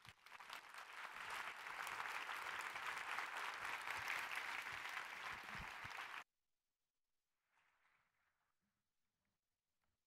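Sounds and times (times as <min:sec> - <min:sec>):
audience applauding: 0:00.0 - 0:06.2.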